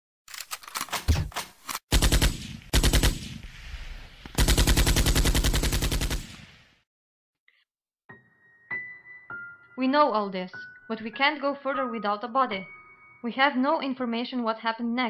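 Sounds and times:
automatic gunfire bursts: 1.9 - 3.4, 4.4 - 6.4.

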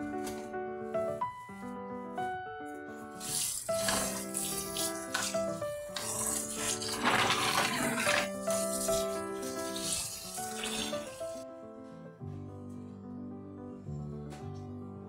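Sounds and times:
background music: 0.0 - 15.0
tap water running: 3.1 - 11.4.

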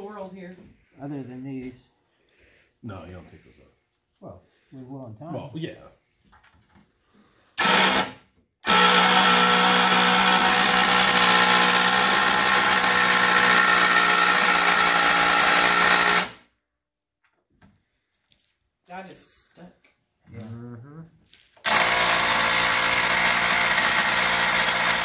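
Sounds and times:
electric drill running: 7.6 - 16.4, 21.6 - 25.0.

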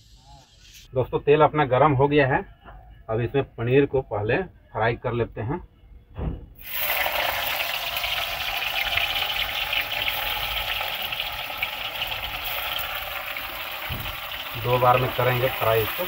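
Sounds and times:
food sizzling in hot oil: 6.6 - 16.0.

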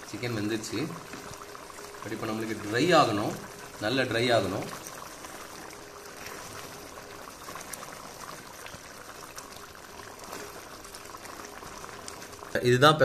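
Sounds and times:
curry bubbling in a pan: 0.0 - 13.0.

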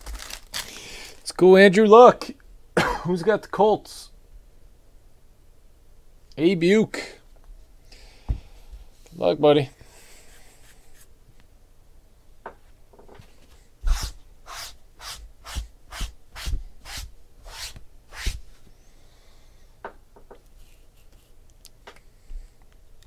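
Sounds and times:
card pack scraping and rustling: 0.0 - 1.2.

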